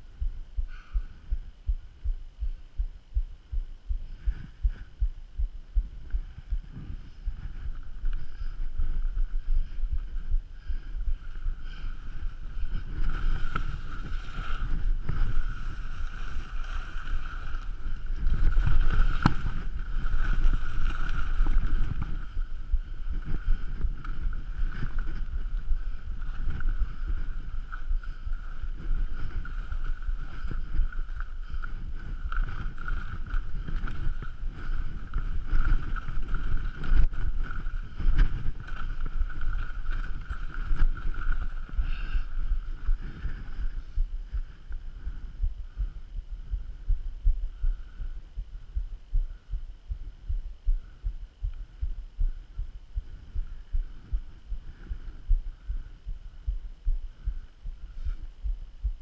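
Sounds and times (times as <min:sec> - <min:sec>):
faint steady whine: 0:00.0 - 0:59.0
wind buffeting microphone: 0:03.8 - 0:48.1
skis scraping over snow: 0:12.8 - 0:22.3.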